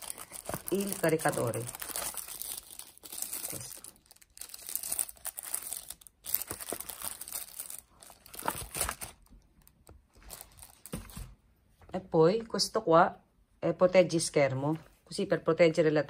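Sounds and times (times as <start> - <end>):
plastic bag crinkling: 0.0 - 11.3.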